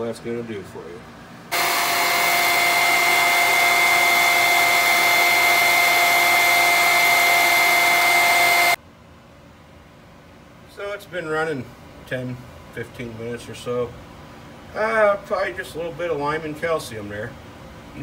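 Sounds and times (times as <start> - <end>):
electric pump whining: 1.5 - 8.8.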